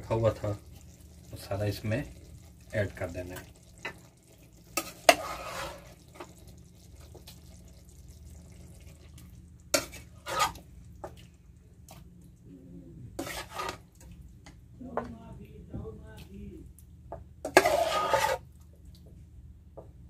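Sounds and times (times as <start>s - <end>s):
wet scraping: 4.8s - 5.9s, 9.8s - 11.2s, 13.2s - 13.9s, 17.5s - 18.5s
metal ladle scraping steel bowl: 4.8s - 6.0s, 9.8s - 10.6s, 13.2s - 13.8s, 17.4s - 18.5s.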